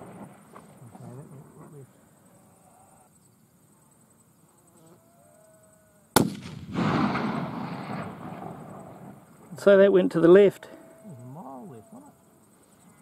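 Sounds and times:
rifle shot with echo: 6.2 - 9.1.

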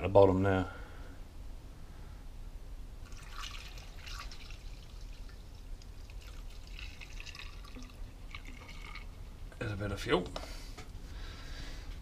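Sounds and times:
fuel trickling through a funnel: 3.0 - 9.5.

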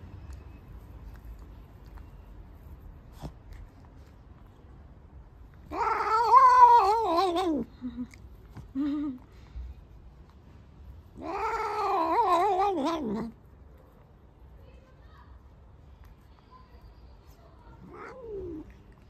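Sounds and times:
cat meowing: 5.6 - 7.7, 11.2 - 13.4, 17.8 - 18.8.

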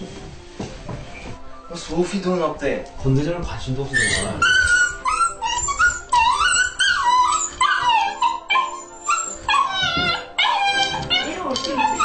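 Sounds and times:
dogs whining and howling: 3.9 - 12.0.

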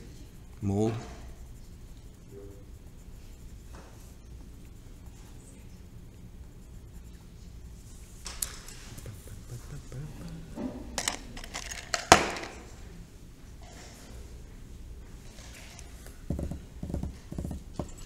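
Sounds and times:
pencils clicking on a desk: 8.2 - 9.9, 11.0 - 12.7, 15.4 - 18.0.

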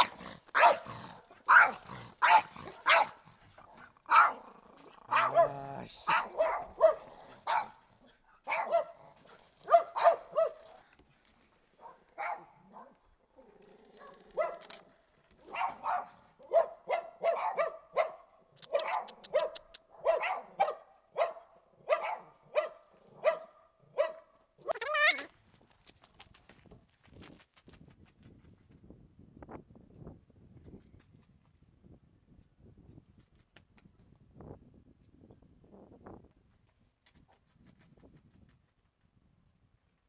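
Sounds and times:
puppy yapping: 0.0 - 0.9, 1.5 - 3.2, 5.1 - 7.8.

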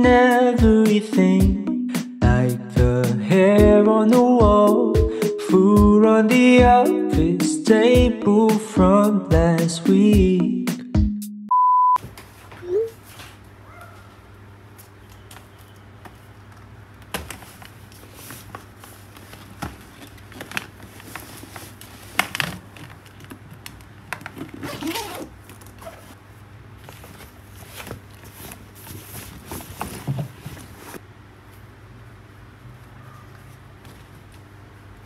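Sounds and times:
backpack fabric rustling: 24.4 - 26.2.

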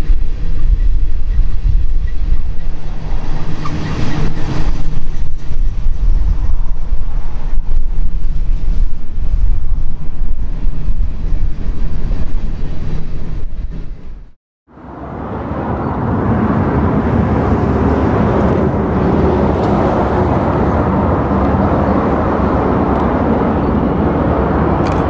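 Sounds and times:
freight train rumbling past: 0.0 - 25.0.

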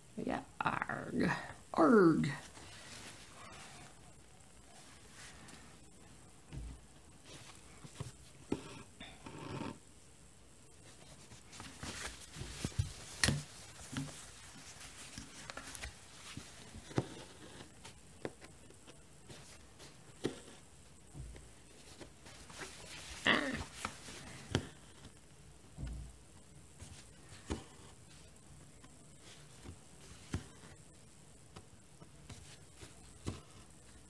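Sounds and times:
cloth rustling: 2.3 - 8.5, 10.8 - 20.6, 21.3 - 25.2.

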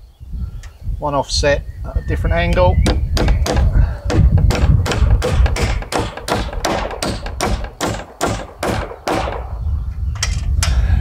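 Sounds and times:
hammer driving nail into timber: 2.8 - 9.5.

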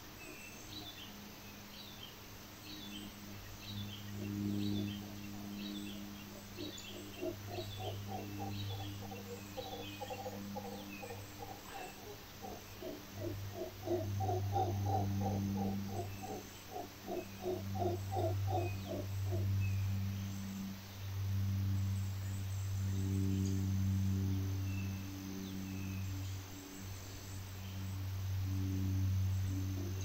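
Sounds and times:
faint bird chirps: 2.7 - 20.7
howler monkeys calling: 3.3 - 20.0.

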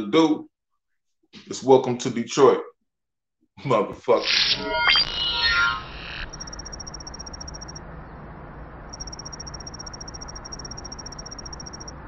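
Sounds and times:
high-pitched electronic pulsing trill: 4.2 - 12.0.

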